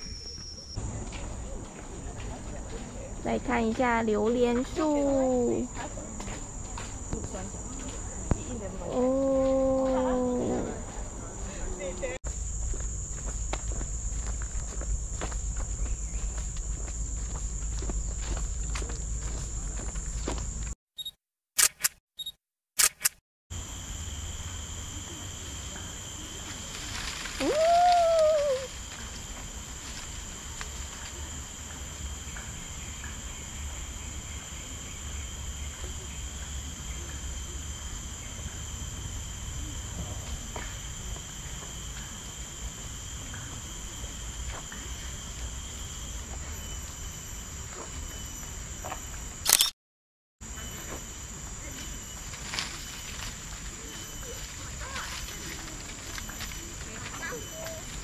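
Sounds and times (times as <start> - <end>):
sharp clicks: 21.0 - 23.2, 49.4 - 49.8.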